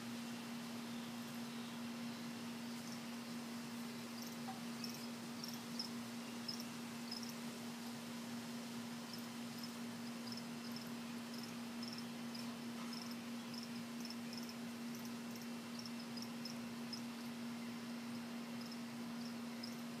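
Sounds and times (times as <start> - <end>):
steady low hum: 0.0 - 20.0
crickets chirping: 4.0 - 7.4, 9.1 - 17.4, 18.1 - 20.0.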